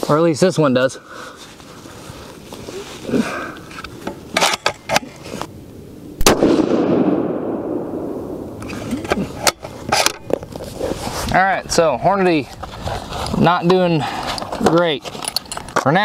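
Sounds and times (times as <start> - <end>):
rifle shot: 6.2 - 8.6.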